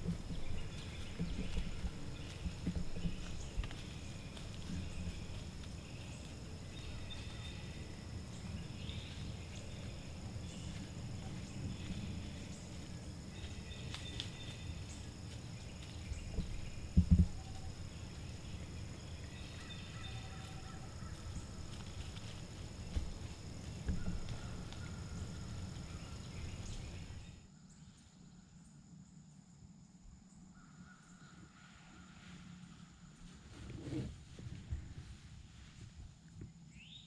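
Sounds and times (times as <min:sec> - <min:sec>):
insects droning: 0:00.0 - 0:33.6
dull thump: 0:16.3 - 0:17.8, 0:22.9 - 0:24.6.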